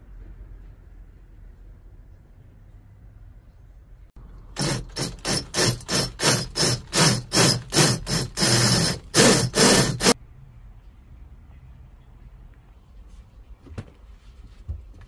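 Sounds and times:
hand saw cutting wood: 4.6s - 10.2s.

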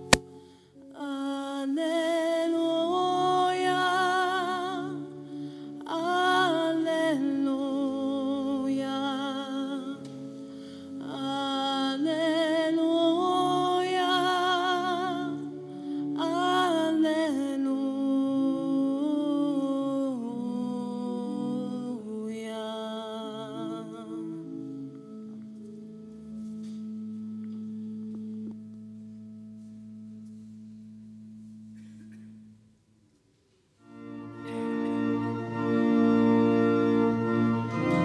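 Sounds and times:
wordless vocal melody with vibrato: 0.0s - 10.0s, 10.7s - 25.2s.

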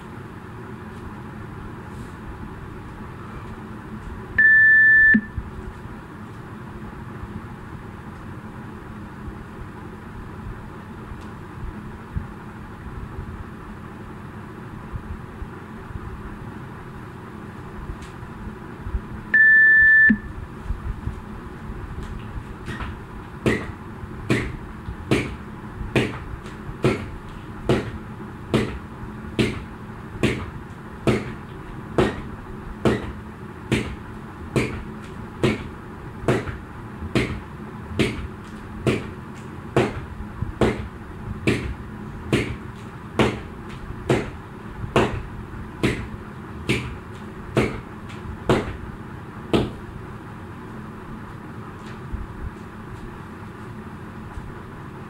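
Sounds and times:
timer electronic beep: 4.4s - 5.4s, 19.4s - 20.3s.

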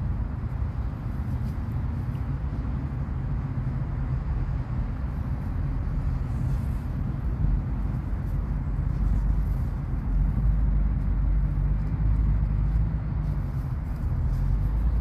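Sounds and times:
low outdoor rumble: 0.0s - 15.0s.

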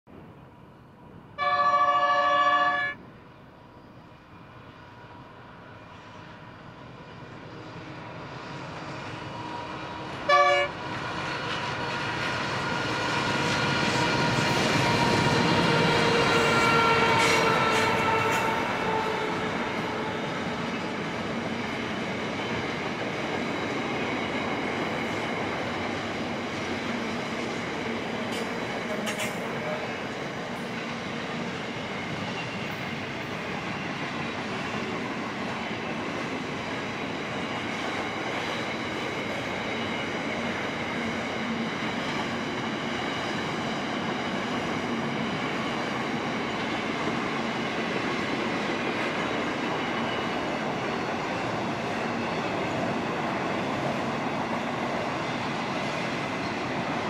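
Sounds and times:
train horn blast: 1.4s - 3.0s, 10.2s - 10.8s, 14.8s - 20.2s.

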